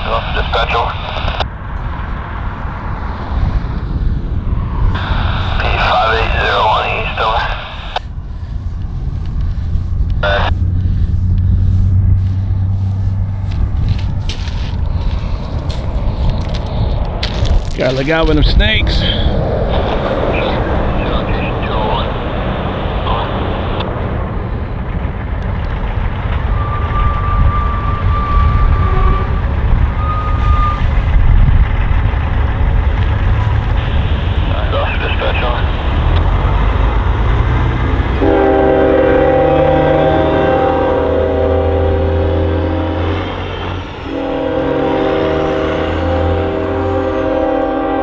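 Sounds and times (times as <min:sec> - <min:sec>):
diesel locomotive engine rumble: 0:00.0 - 0:48.0
locomotive air horn: 0:26.6 - 0:30.8, 0:38.2 - 0:48.0.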